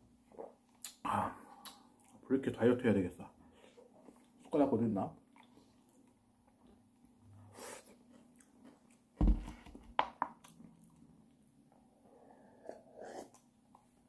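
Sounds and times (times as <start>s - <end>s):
heavy thump: 9.2s - 9.6s.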